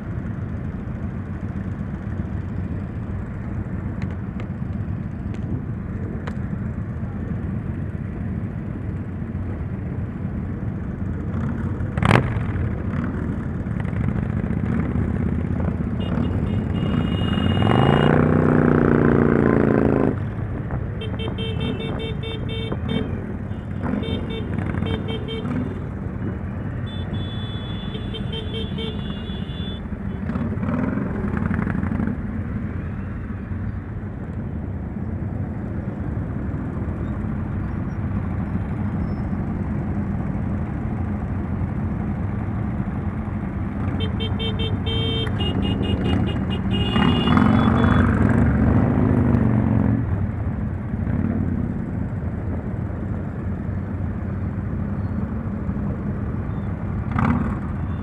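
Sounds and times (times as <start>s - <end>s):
motorcycle engines and road noise: 0.0s - 58.0s
horns beeping: 15.9s - 18.3s, 21.0s - 26.0s, 26.6s - 30.4s, 43.9s - 48.3s
engine revving: 16.0s - 20.2s, 45.4s - 50.0s.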